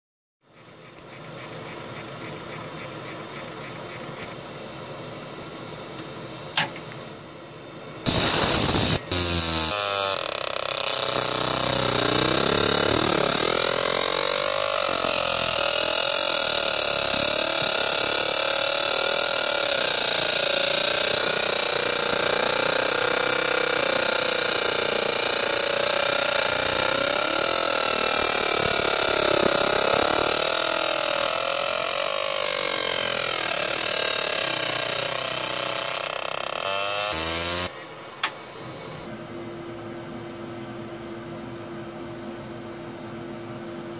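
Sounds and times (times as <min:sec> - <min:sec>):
laser engraver hissing: 0:08.1 - 0:37.8
click: 0:38.2 - 0:38.4.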